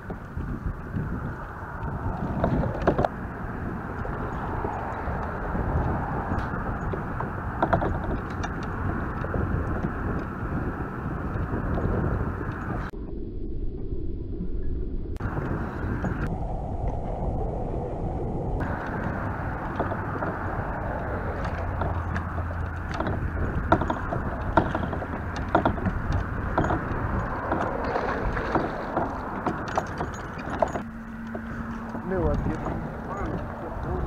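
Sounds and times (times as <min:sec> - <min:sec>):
wind rumbling on microphone: 0:00.0 - 0:34.0
clicks and knocks: 0:06.3 - 0:09.4, 0:18.6 - 0:33.5.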